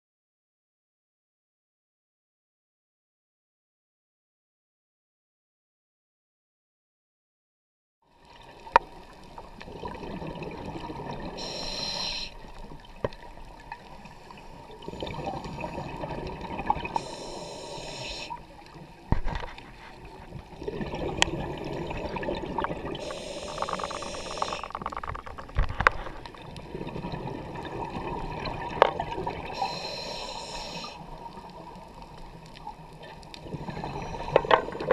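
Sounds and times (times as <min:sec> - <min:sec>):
exhaled bubbles rushing: 0:09.4 - 0:11.4, 0:14.5 - 0:17.0, 0:20.1 - 0:25.6, 0:26.3 - 0:29.6.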